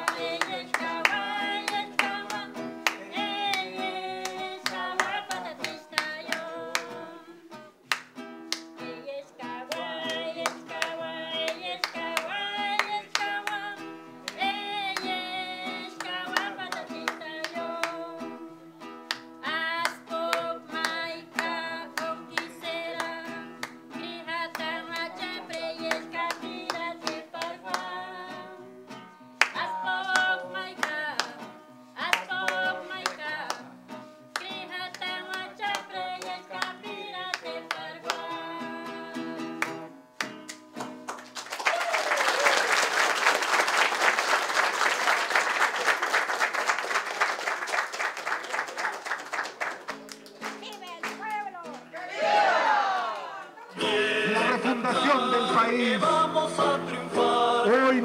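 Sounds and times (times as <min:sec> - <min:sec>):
applause: 0:00.0 - 0:06.9, 0:07.9 - 0:08.7, 0:15.8 - 0:18.0, 0:19.1 - 0:23.8, 0:24.5 - 0:27.9, 0:32.1 - 0:33.6, 0:39.6 - 0:52.0
person singing: 0:00.0 - 0:07.7, 0:08.8 - 0:18.5, 0:19.4 - 0:28.8, 0:29.4 - 0:33.7, 0:34.3 - 0:39.7, 0:53.6 - 0:58.0
strummed acoustic guitar: 0:00.0 - 0:41.4, 0:53.7 - 0:58.0.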